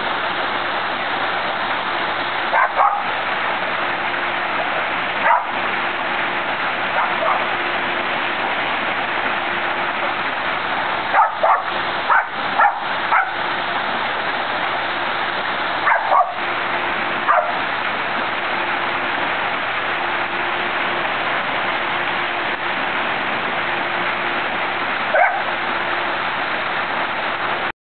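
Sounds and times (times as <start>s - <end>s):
waterfall rushing: 0.0s - 27.7s
dog barking: 2.5s - 3.1s, 5.2s - 5.5s, 7.0s - 7.5s, 11.1s - 13.4s, 15.8s - 16.4s, 17.3s - 17.6s, 25.1s - 25.5s.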